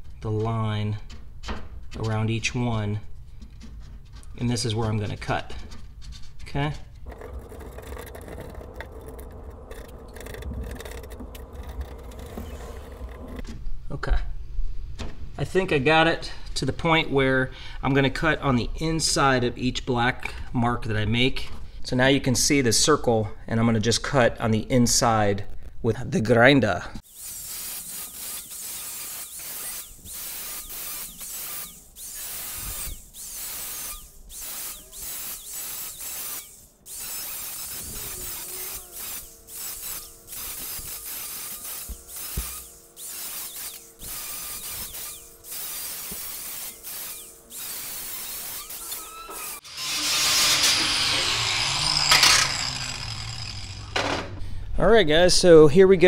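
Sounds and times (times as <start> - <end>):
low mechanical hum: 0.0 - 15.3, 27.0 - 54.8
marker scratching on wire rack: 27.0 - 49.7.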